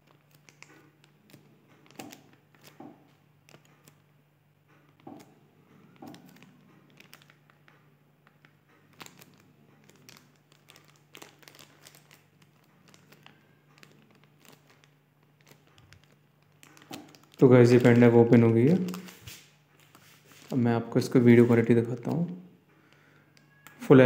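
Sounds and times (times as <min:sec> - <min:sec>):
small clicks and crinkles: 0:00.0 - 0:23.9.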